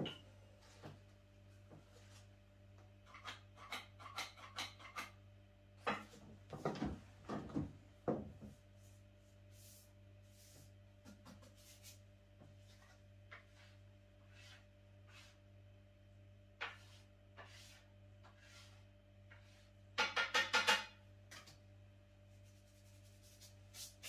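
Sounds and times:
kitchen items clicking on wood: 0:03.0 - 0:05.2
knocks and scrapes on table: 0:16.6 - 0:21.6.

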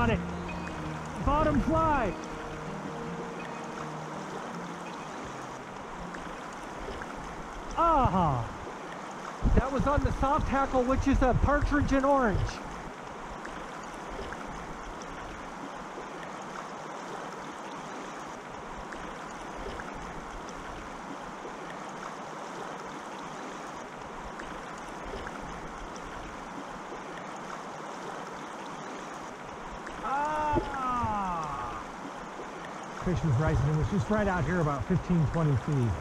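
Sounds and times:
river water flowing: 0:00.0 - 0:36.0
man exclaiming: 0:07.8 - 0:08.5, 0:30.0 - 0:31.9.

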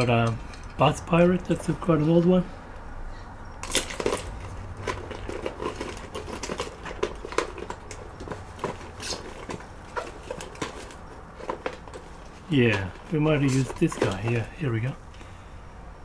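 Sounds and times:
small objects clicking and rustling: 0:00.0 - 0:01.0, 0:03.6 - 0:15.3.

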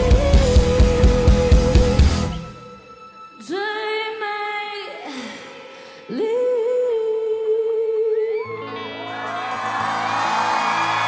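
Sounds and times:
band low instruments: 0:00.0 - 0:02.8
woman singing sustained notes: 0:02.6 - 0:08.6.

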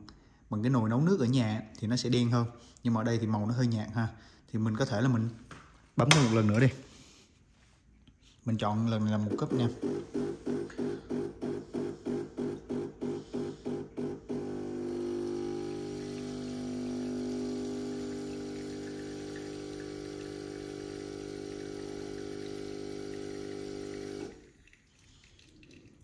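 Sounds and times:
espresso machine pump: 0:09.3 - 0:24.5
faint dripping: 0:15.4 - 0:26.0.

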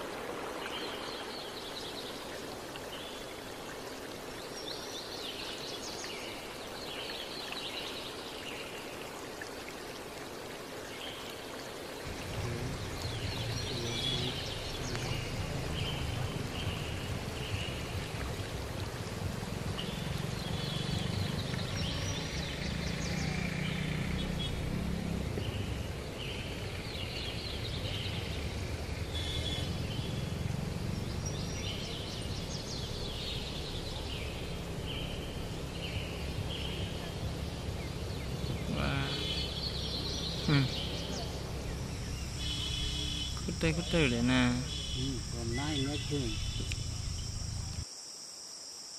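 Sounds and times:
steady hiss: 0:00.0 - 0:48.9
birds singing: 0:12.0 - 0:47.8
low rumble: 0:12.1 - 0:23.4, 0:24.5 - 0:47.8.

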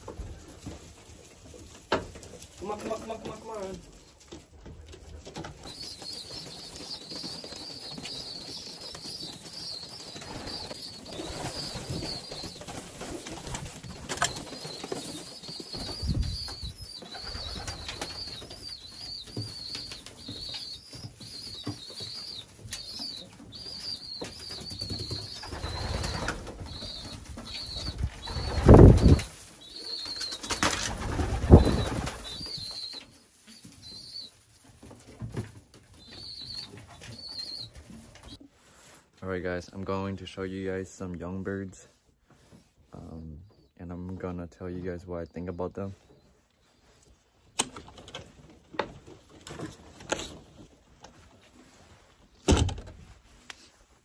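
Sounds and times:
young pigeons peeping: 0:00.0 - 0:52.6
wings flapping: 0:02.2 - 0:35.1.

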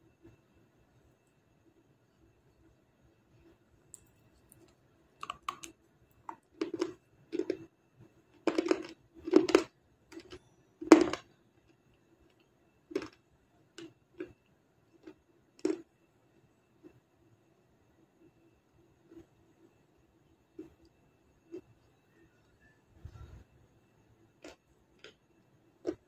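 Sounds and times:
crunching and chewing brittle block: 0:03.9 - 0:07.7, 0:08.4 - 0:11.3, 0:12.9 - 0:13.2, 0:15.0 - 0:15.9, 0:24.4 - 0:25.2, 0:25.8 - 0:26.0.

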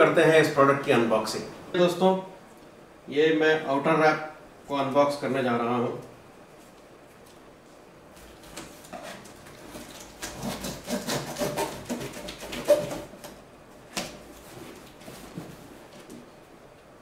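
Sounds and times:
blade scraping tape and cardboard: 0:08.6 - 0:13.4.

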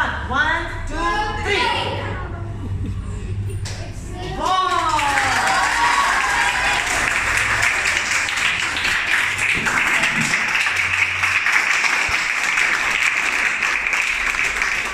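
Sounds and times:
children applauding: 0:04.4 - 0:14.9.

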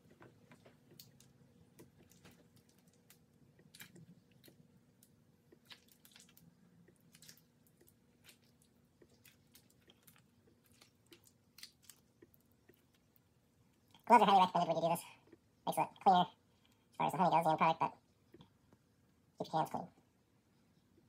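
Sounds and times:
wax comb squishing and crackling: 0:00.0 - 0:14.0.

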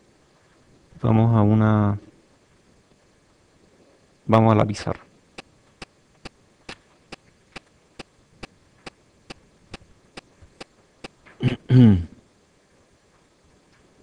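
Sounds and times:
sharp clicks: 0:05.4 - 0:11.3.

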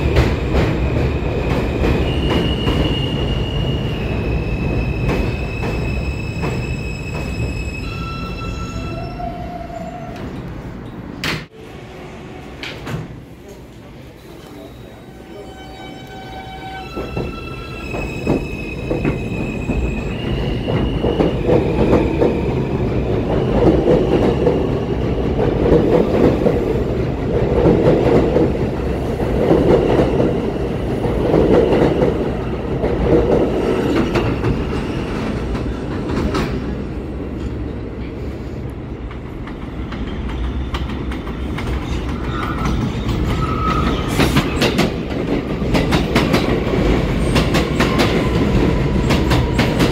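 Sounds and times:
approaching train: 0:00.0 - 0:49.9
train cars rumbling on rails: 0:00.0 - 0:49.9.

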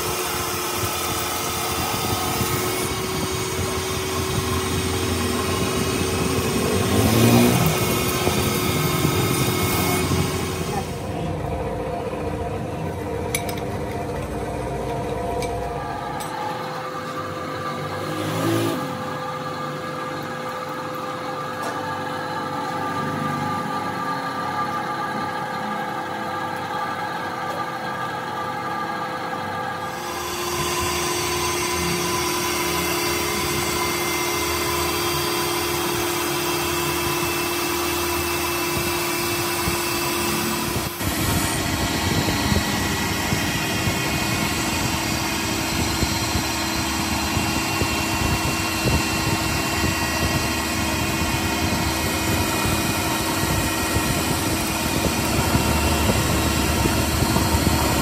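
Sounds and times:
metal lathe humming: 0:00.0 - 0:58.0
hiss of lathe cutting: 0:29.9 - 0:58.0.

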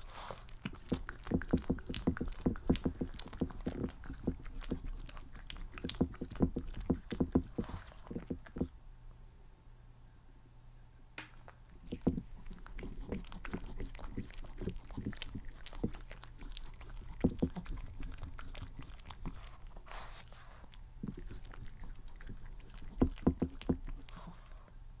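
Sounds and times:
dog chewing crunches: 0:00.0 - 0:08.7, 0:11.6 - 0:24.5
dog licking glass: 0:00.0 - 0:08.7, 0:11.8 - 0:19.8, 0:21.0 - 0:24.3.

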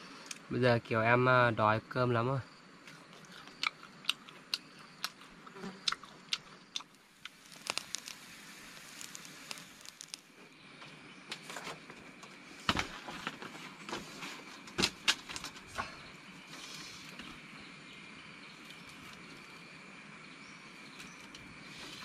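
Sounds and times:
campfire crackling: 0:02.7 - 0:22.0
fire snapping: 0:05.8 - 0:10.4.

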